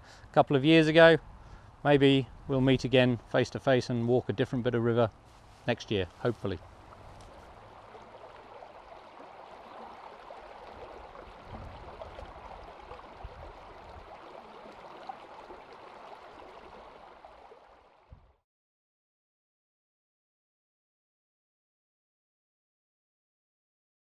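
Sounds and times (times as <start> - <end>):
river water running over stones: 6.2 - 18.1.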